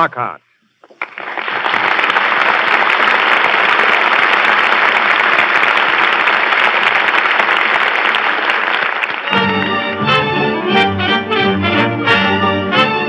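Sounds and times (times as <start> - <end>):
audience applauding: 0.8 - 10.5.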